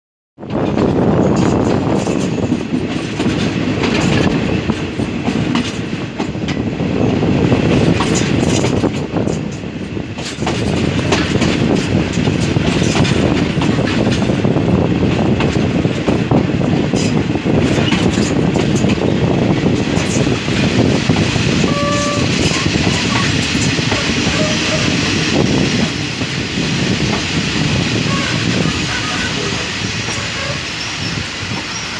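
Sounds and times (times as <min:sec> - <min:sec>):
wheels clicking over rail joints: 0:00.4 - 0:06.7, 0:07.7 - 0:26.4
train carriage rumble: 0:00.4 - 0:31.9.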